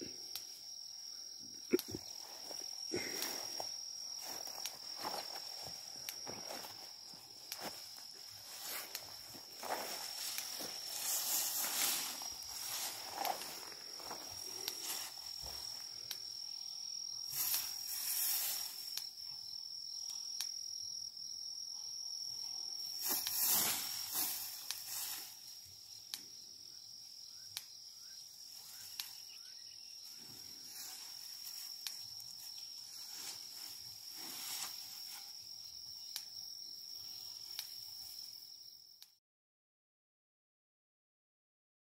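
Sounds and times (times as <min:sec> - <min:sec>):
high-pitched insect trill: 0:00.0 - 0:39.0
dry grass rustling and tearing: 0:07.5 - 0:15.6, 0:23.0 - 0:25.4.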